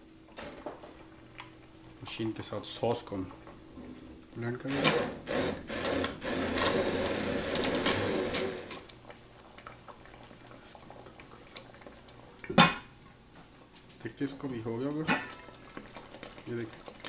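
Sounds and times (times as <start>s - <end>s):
hand blender running: 4.7s - 8.8s.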